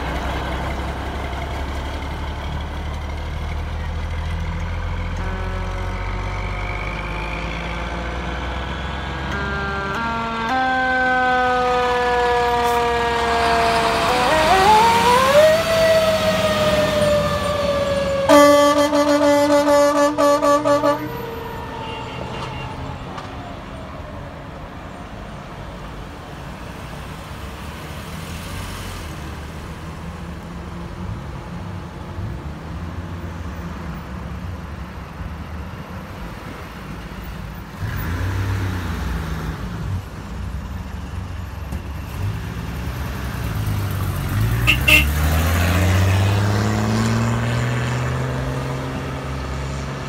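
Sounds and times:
truck engine running: 0.0s - 10.4s
horn blast: 5.2s - 6.8s, 9.2s - 15.8s, 18.3s - 21.3s, 44.6s - 45.3s
siren winding down: 6.5s - 19.4s.

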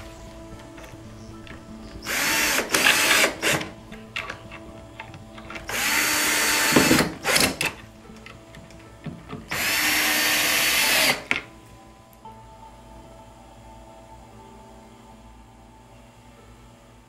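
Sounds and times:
power drill driving screws: 2.0s - 3.8s, 5.5s - 7.8s, 9.5s - 11.4s.

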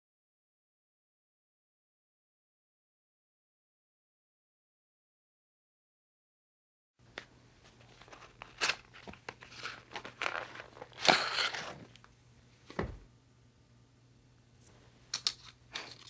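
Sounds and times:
cigarette pack wrapper crinkling: 7.6s - 12.1s
dull thump: 12.7s - 13.1s.

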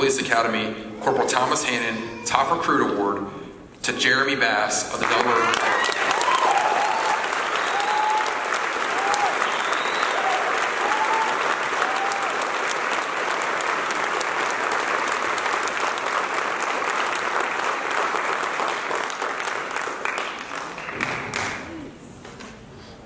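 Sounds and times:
audience applauding: 4.9s - 21.8s.

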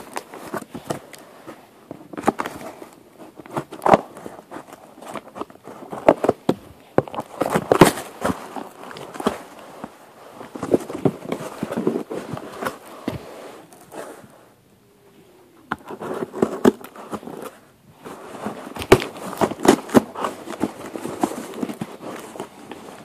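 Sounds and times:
cardboard box being opened: 15.7s - 23.0s.

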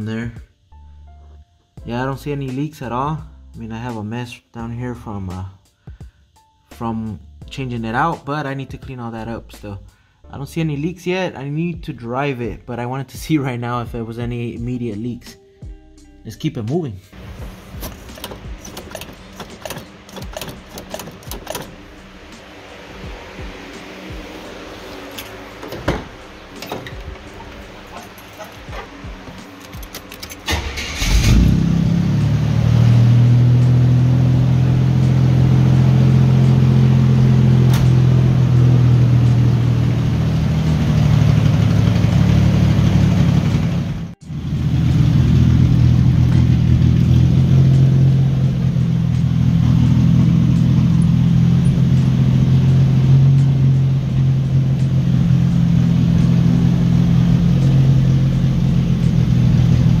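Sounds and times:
car engine cranking and idling: 17.1s - 60.0s.

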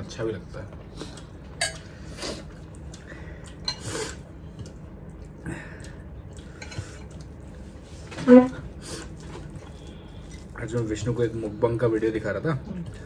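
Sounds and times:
metal spoon clinking on plates: 1.6s - 1.9s.

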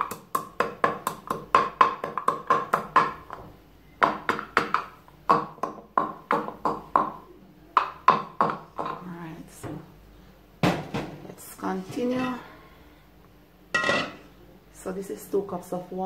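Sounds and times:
wooden pestle pounding in mortar: 0.0s - 3.4s, 4.0s - 7.2s, 7.8s - 9.1s.

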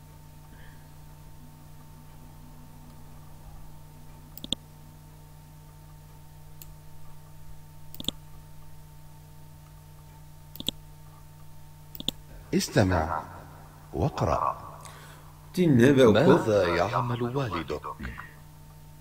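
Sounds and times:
low electrical hum: 0.0s - 19.0s
computer mouse clicking: 4.4s - 4.6s, 7.9s - 8.2s, 10.5s - 10.8s, 11.9s - 12.2s.

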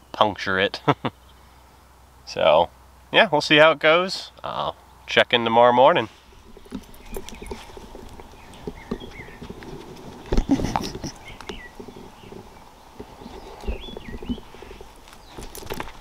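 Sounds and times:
faint birds chirping: 0.0s - 16.0s
puppy snuffling: 6.1s - 15.5s
nose bumping microphone: 6.4s - 16.0s.

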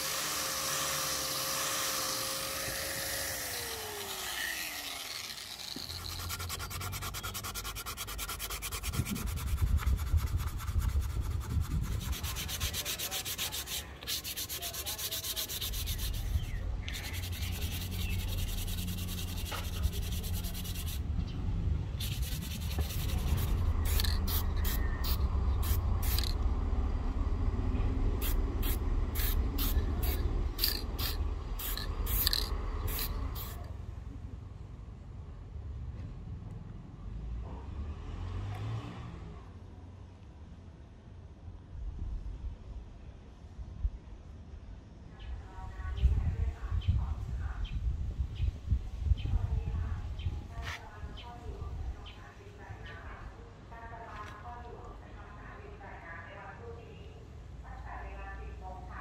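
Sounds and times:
electric polisher whining: 0.0s - 6.3s
hand rubbing on wooden handle: 5.5s - 21.0s, 22.0s - 26.4s, 28.2s - 33.7s.

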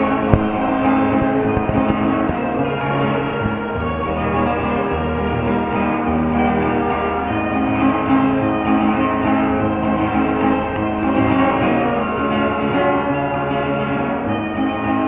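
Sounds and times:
plucked string music: 0.0s - 5.0s.

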